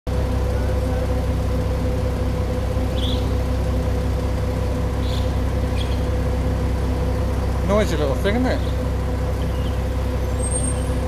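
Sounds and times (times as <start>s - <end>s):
low mechanical hum with whine: 0.1s - 11.0s
short high bird chirps: 3.0s - 3.3s, 5.0s - 6.0s.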